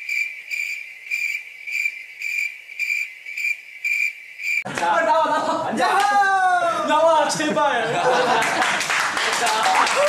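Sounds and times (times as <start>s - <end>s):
cricket chirping: 0.0s - 4.7s.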